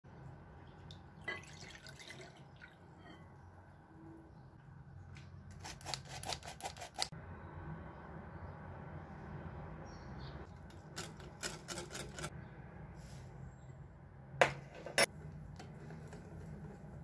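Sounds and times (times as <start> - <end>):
milk pouring and splashing: 1.2 - 3.0.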